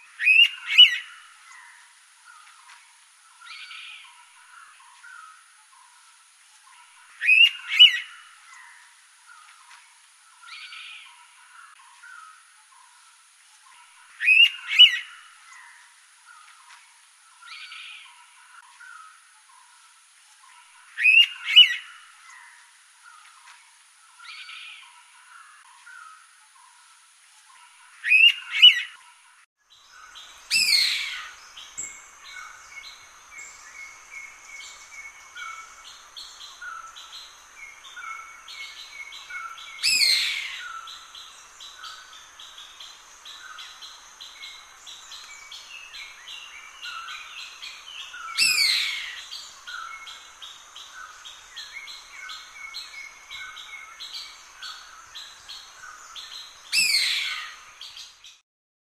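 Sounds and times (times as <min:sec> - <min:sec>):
birds chirping: 0:27.4 - 0:58.4.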